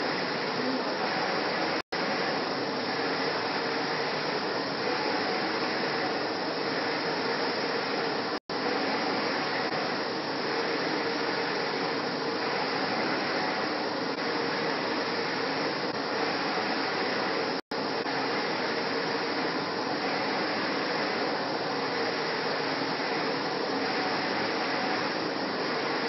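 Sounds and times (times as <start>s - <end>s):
printer mechanical whirring: 0.0s - 26.0s.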